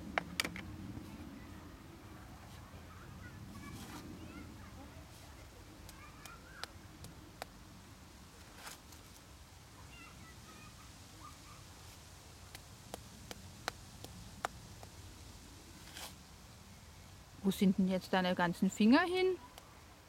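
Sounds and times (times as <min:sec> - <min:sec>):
plastic shovel digging in sand: 0:15.8 - 0:16.2.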